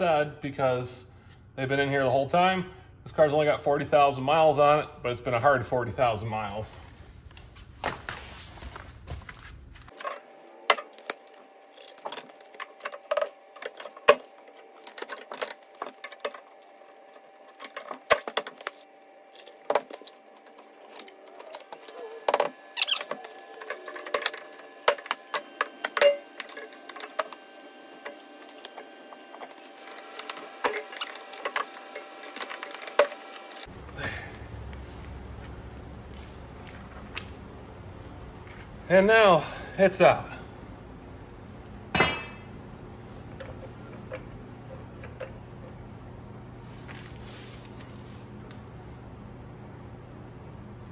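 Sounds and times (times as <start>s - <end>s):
pry bar clanking on metal: 42.0s - 42.5s.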